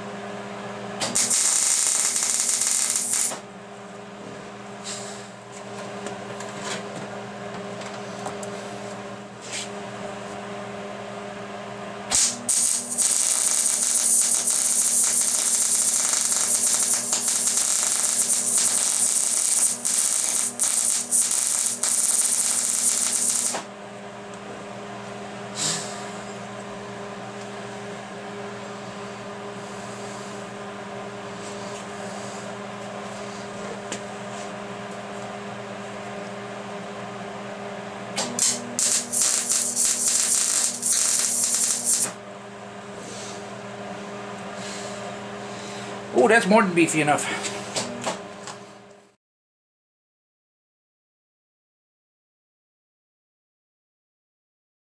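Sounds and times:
steady hum: 0.0 - 4.3, 7.8 - 49.2
welding arc crackling: 1.0 - 3.4, 12.1 - 23.7, 38.4 - 42.2.

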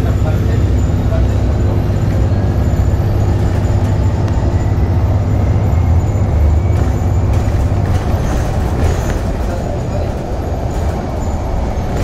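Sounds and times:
bus engine running: 0.0 - 12.0.

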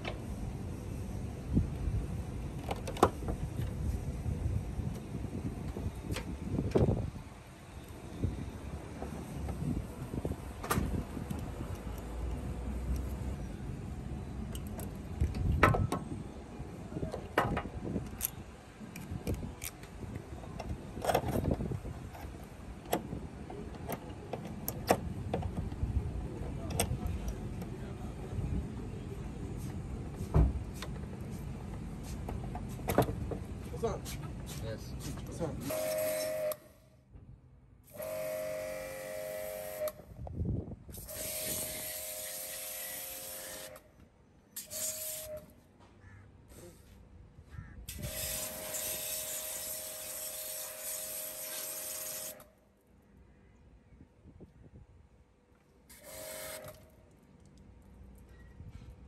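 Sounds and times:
pressure washer motor whine: 38.0 - 40.0, 55.9 - 56.8
water jet hissing: 48.0 - 52.4.

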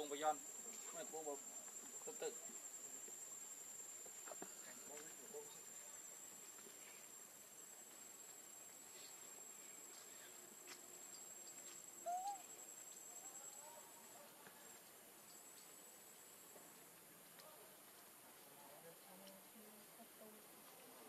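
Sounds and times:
high-pitched insect trill: 0.0 - 14.1, 15.2 - 16.5.

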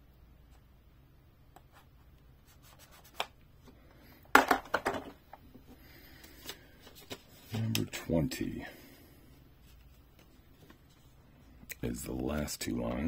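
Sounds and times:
plastic toy clattering: 4.3 - 5.2.

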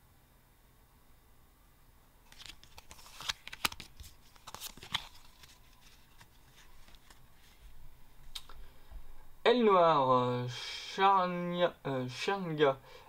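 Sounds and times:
card stock snapping: 2.3 - 5.5
trading cards rustling: 2.3 - 7.7.

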